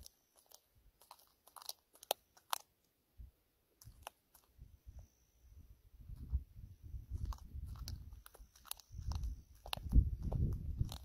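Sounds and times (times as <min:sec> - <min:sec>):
animal crunching and chewing: 0:00.0 - 0:02.9, 0:03.7 - 0:04.6, 0:07.1 - 0:11.0.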